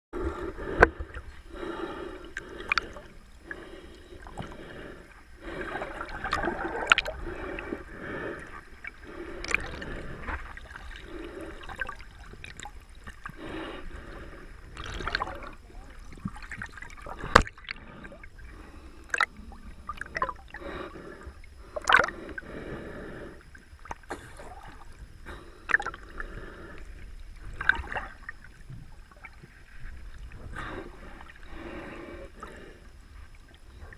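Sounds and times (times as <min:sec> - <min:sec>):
muffled underwater gurgling: 0:00.2 - 0:33.9.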